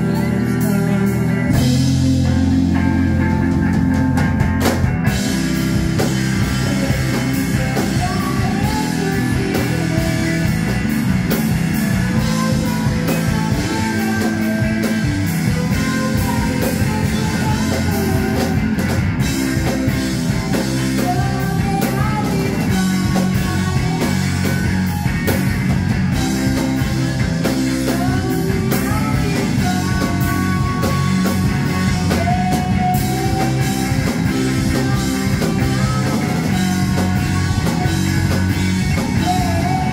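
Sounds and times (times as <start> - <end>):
drum kit: 0.0 - 39.9
electric bass: 0.0 - 39.9
electric guitar: 0.0 - 39.9.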